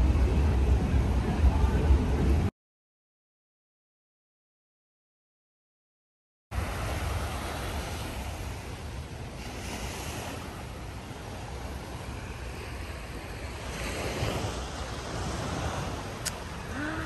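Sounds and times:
wind rumbling on microphone: 0.0 - 2.5, 6.6 - 17.0
small waves washing onto sand: 6.6 - 17.0.

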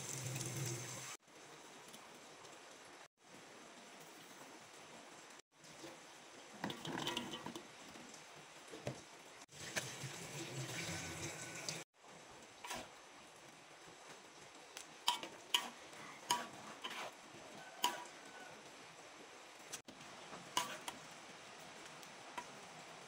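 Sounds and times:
metal spatula scraping wok: 12.7 - 12.9, 15.1 - 17.2, 17.8 - 18.2, 20.6 - 21.0.

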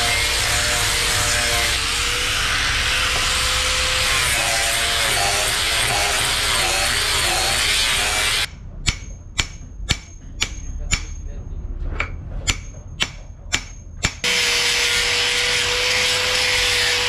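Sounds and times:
angle grinder sanding wood: 0.0 - 8.5, 14.2 - 17.0.

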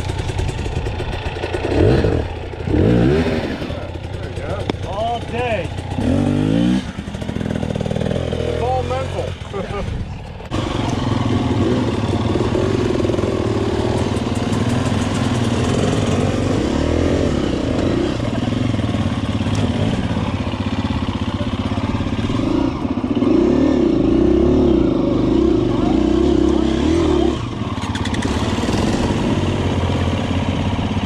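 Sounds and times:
dirt bike engine revving: 0.0 - 31.0.

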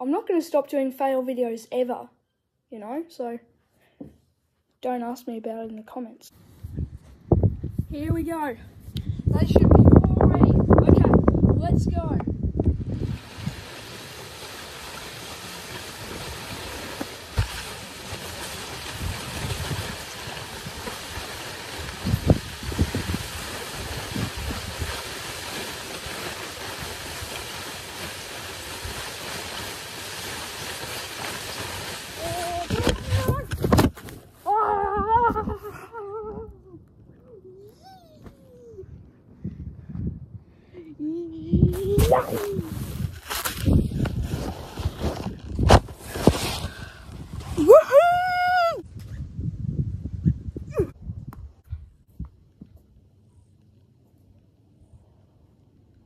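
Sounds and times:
wind rushing on microphone: 6.5 - 13.7, 18.8 - 25.0, 32.2 - 33.9, 38.5 - 52.4
boy yelling high-pitched: 32.2 - 33.5, 34.5 - 35.6, 37.2 - 39.0, 40.8 - 42.8.

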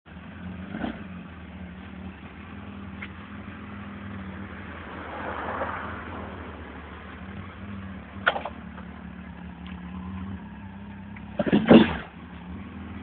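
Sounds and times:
motorcycle engine idling: 0.1 - 4.9, 6.6 - 13.0.

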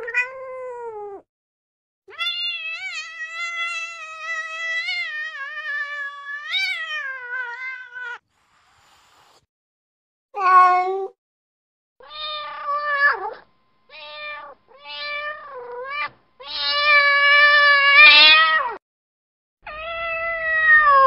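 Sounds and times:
cat meowing: 0.0 - 1.2, 2.1 - 8.2, 10.4 - 11.2, 12.0 - 18.8, 19.7 - 21.0.

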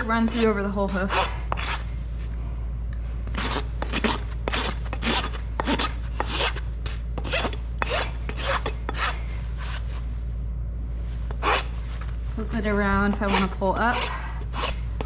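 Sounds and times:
hoof rasp filing: 0.0 - 1.9, 3.3 - 6.6, 7.2 - 9.8, 13.1 - 14.8.

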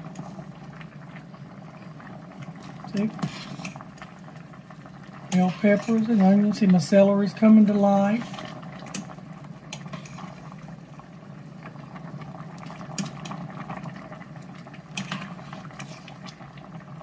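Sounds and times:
soup boiling and bubbling: 0.0 - 17.0
ladle stirring: 2.4 - 4.2, 5.2 - 6.7, 8.0 - 10.7, 14.5 - 16.4.

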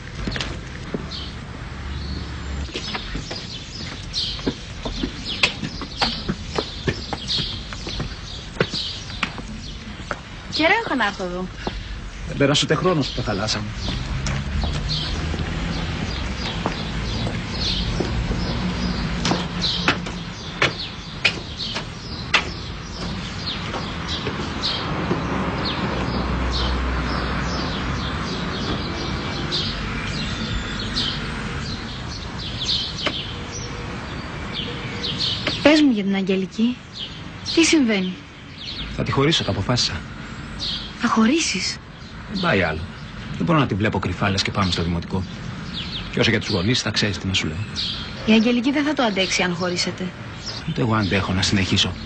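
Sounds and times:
footsteps on stone steps: 0.0 - 12.1, 13.3 - 26.3, 27.0 - 29.7, 32.4 - 33.7, 35.3 - 36.0
shoes clicking on street: 0.0 - 12.2, 12.9 - 36.0
birds chirping: 0.0 - 52.0.

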